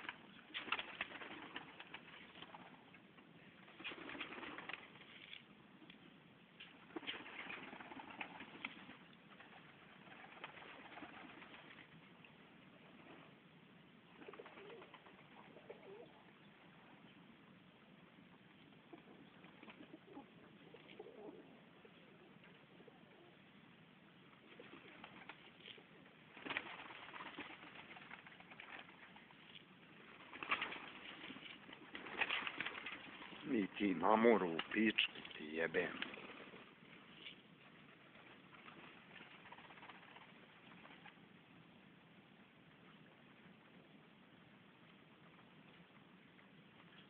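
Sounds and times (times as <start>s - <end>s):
pigeons cooing faintly: 0.0s - 47.0s
pigeons cooing: 14.2s - 16.3s, 18.8s - 23.5s.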